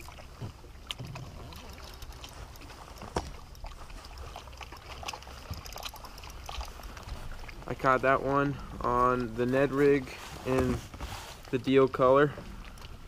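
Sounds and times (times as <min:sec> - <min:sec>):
water lapping against boat hull: 0:00.0 - 0:13.0
fishing reel clicks: 0:01.5 - 0:03.7, 0:04.4 - 0:07.0.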